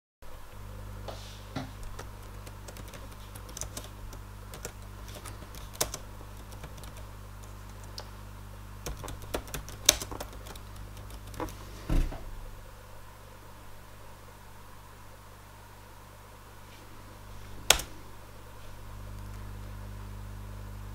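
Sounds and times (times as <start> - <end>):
steady low hum: 0.2 - 20.9
heavier thump: 11.9 - 12.4.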